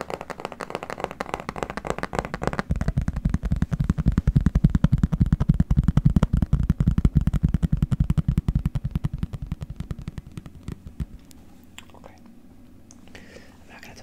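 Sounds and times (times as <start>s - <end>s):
fast dull tapping: 0.0s - 11.4s.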